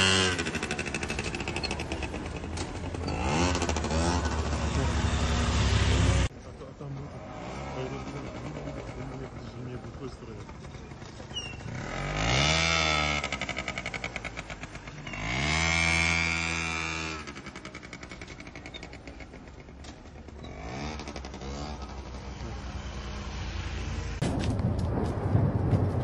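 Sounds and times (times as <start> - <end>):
engine revving: 0.0 - 6.3, 11.6 - 18.5, 20.2 - 24.2.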